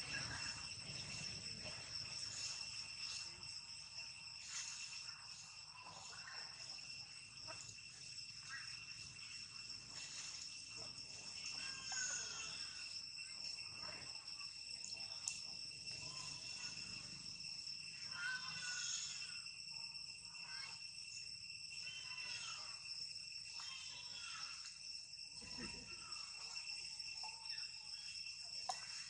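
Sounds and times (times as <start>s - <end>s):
insect chorus buzzing: 0.0s - 29.0s.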